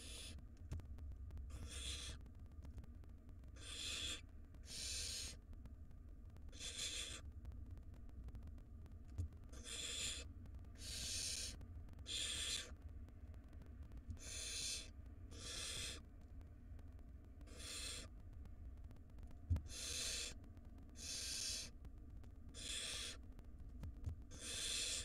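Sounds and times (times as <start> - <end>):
owl chicks hissing: 0.0 - 0.4, 1.5 - 2.2, 3.6 - 5.4, 6.5 - 7.2, 9.6 - 12.8, 14.2 - 16.1, 17.5 - 18.2, 19.6 - 21.8, 22.6 - 23.2, 24.3 - 25.0.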